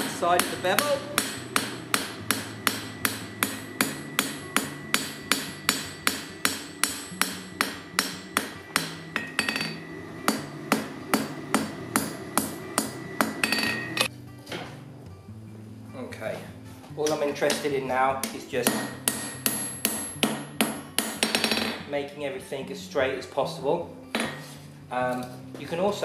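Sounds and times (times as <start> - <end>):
hammer striking on anvil: 0.0 - 14.1, 17.0 - 21.9.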